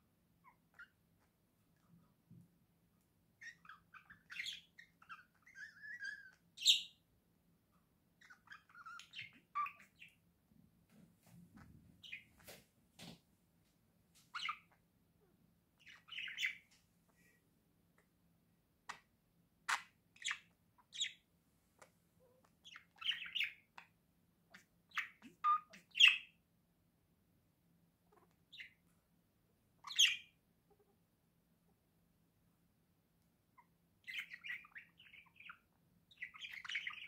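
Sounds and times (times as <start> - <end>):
budgerigars chirping and squawking: 3.4 - 7.0, 8.2 - 10.2, 12.0 - 12.3, 14.3 - 14.8, 15.8 - 16.7, 19.7 - 21.2, 22.6 - 23.9, 24.5 - 26.4, 28.2 - 28.8, 29.8 - 30.4, 33.6 - 37.0.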